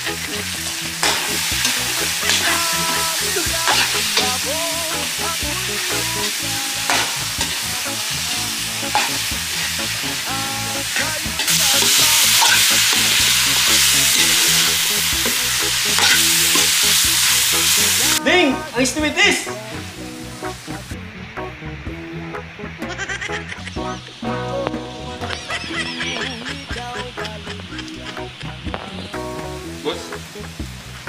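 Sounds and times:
chicken sizzling in a wok: 0.0 - 18.2
metal ladle scraping a pan: 3.7 - 4.3, 11.5 - 15.4, 16.0 - 17.5.

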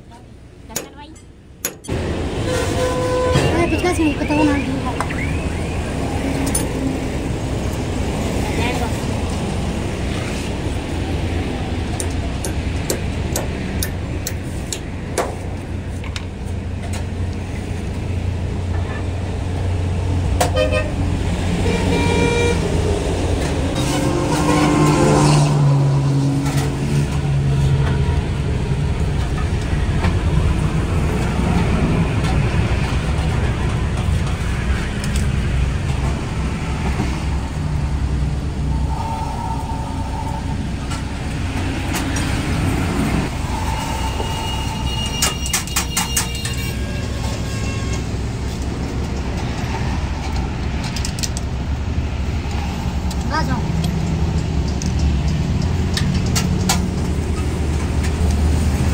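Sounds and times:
traffic engine rumble: 0.0 - 58.9
vehicle horns: 2.4 - 6.0, 20.4 - 21.0, 21.6 - 22.8, 23.8 - 25.4, 38.6 - 40.6, 43.5 - 48.2.

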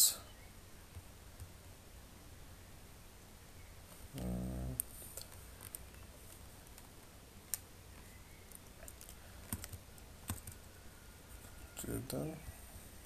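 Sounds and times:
low voice hum: 4.0 - 5.3
mouse and keyboard clicks: 8.5 - 10.6.

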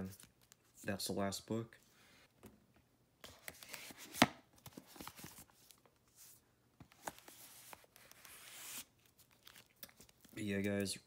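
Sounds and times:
books scraping and rustling: 3.5 - 8.9.

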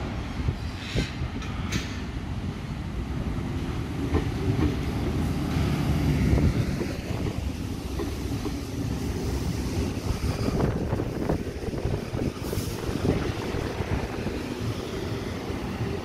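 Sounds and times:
train wheels rumbling: 0.0 - 16.0
wind buffeting microphone: 4.0 - 16.0.

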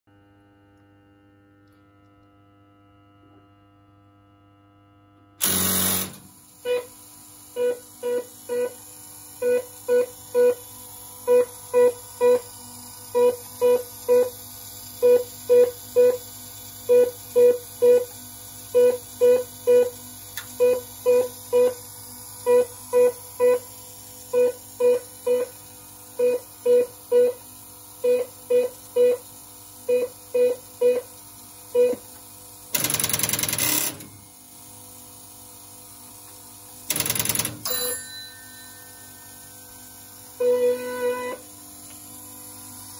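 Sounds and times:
short pitched buzzes: 5.4 - 14.4, 36.9 - 42.9.

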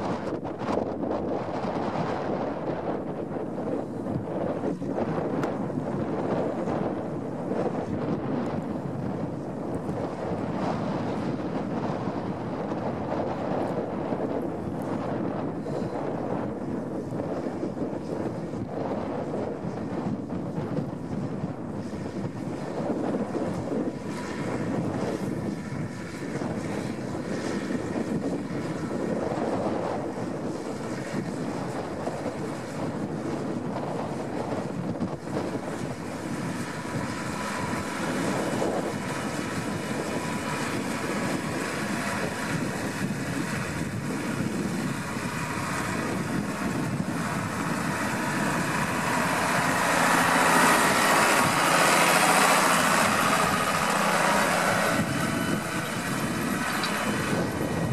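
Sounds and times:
tractor diesel engine: 22.7 - 57.9.

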